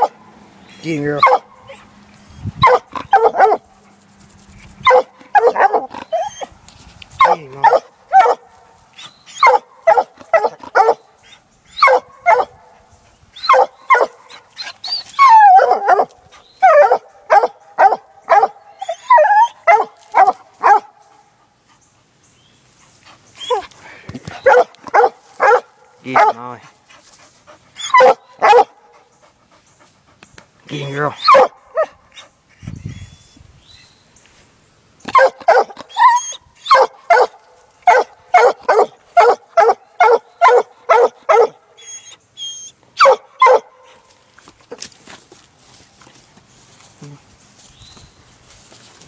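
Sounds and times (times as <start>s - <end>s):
puppy barking: 1.2s - 1.9s, 2.6s - 3.6s, 4.8s - 6.5s, 7.2s - 8.6s, 9.4s - 11.0s, 11.8s - 12.7s, 13.4s - 14.5s, 15.2s - 21.0s, 24.4s - 26.5s, 27.8s - 28.8s, 31.2s - 32.0s, 35.1s - 44.0s
dog baying: 27.8s - 28.9s.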